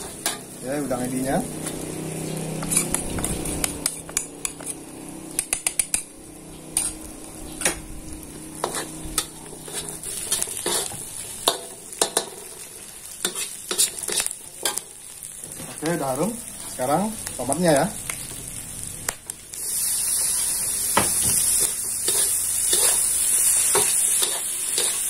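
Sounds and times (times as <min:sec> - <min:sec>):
metal spatula scraping a wok: 0:00.0 - 0:00.6, 0:01.4 - 0:14.9, 0:16.5 - 0:16.9, 0:19.6 - 0:25.0
food sizzling in a wok: 0:00.0 - 0:25.0.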